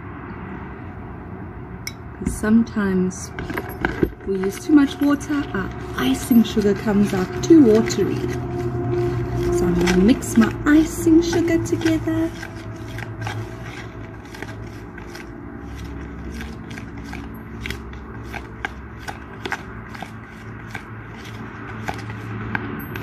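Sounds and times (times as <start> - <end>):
spoon scraping plastic bowl: 3.3 - 23.0.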